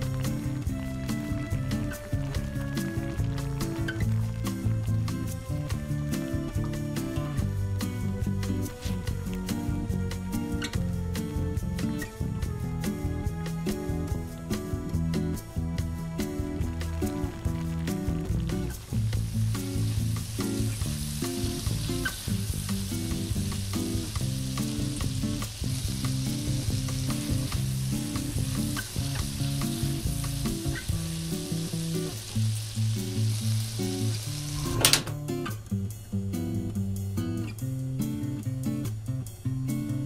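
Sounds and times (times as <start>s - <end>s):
food sizzling in a frying pan: 0.0s - 11.8s, 13.6s - 40.0s
soft background music: 0.0s - 32.4s
wooden spatula scraping a pan: 8.7s - 9.1s.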